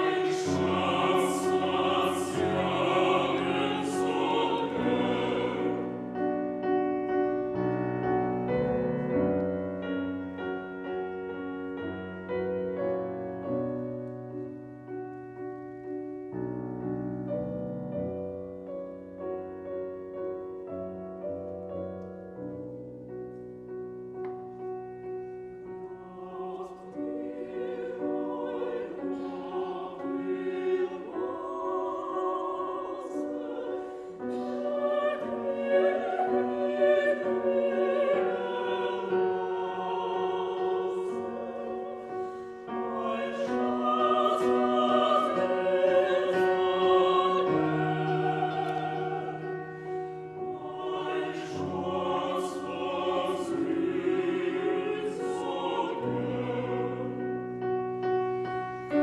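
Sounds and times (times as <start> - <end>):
vocal ensemble singing with vibrato: 0.0 - 7.5, 25.8 - 57.9.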